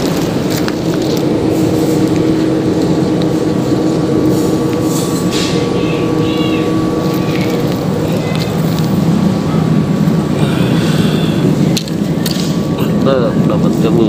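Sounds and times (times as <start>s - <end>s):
motor humming: 0.0s - 14.0s.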